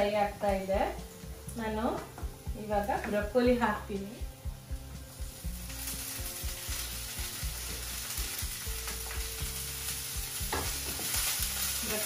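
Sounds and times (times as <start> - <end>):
vegetables sizzling in a frying pan: 0.0 - 12.0
wooden spatula knocking pan: 10.4 - 11.3.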